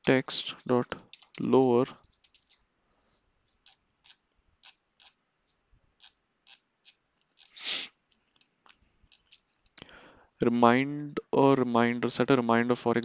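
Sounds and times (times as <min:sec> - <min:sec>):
breath into headset microphone: 0:09.8 - 0:10.4.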